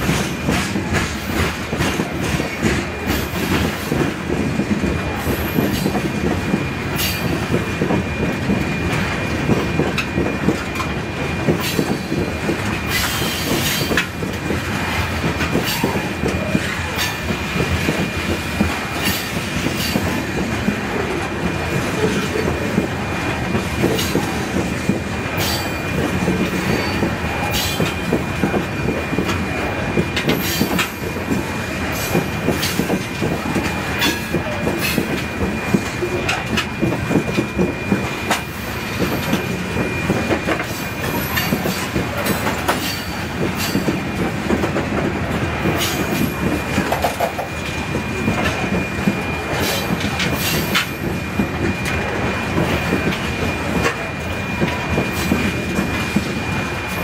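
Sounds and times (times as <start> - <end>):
freight train rumble: 0.0 - 57.0
train wheel squeal: 0.0 - 57.0
wheels clicking over rail joints: 38.3 - 47.5.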